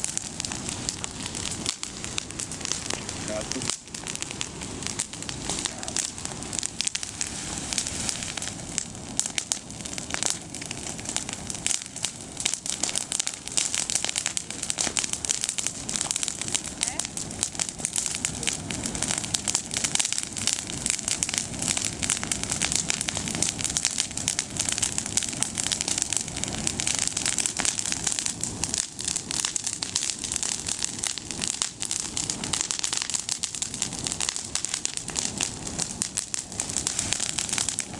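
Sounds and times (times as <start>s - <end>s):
bonfire crackling and popping: 0.0s - 37.9s.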